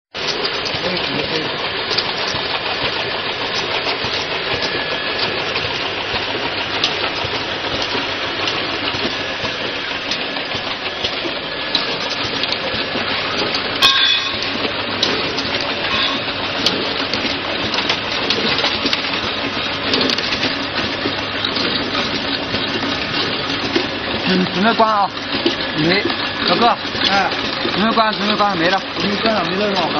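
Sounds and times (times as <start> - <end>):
machine clattering with glass vials: 0.2 - 29.9.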